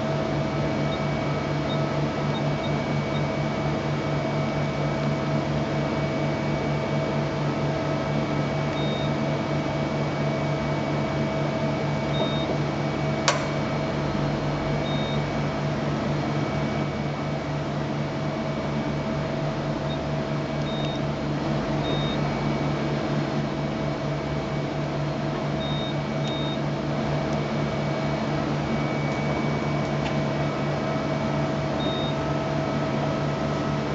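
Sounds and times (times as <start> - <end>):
sharp click: 13.2 - 13.6.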